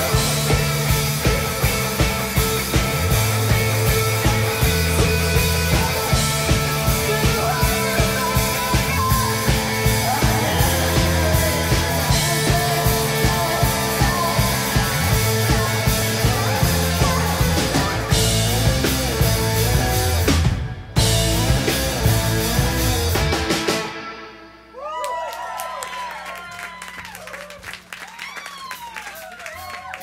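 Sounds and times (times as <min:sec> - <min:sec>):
live rock band playing: 0:00.0 - 0:24.8
woman singing: 0:05.0 - 0:18.2.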